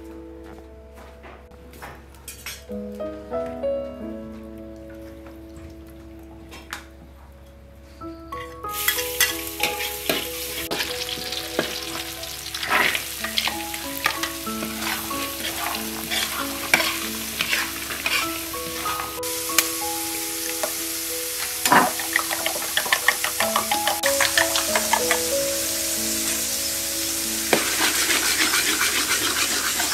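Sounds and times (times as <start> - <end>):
soft background music: 0.0 - 29.9
vegetables sizzling in oil: 8.8 - 29.9
spatula scraping a wok: 8.9 - 19.2, 27.5 - 29.9.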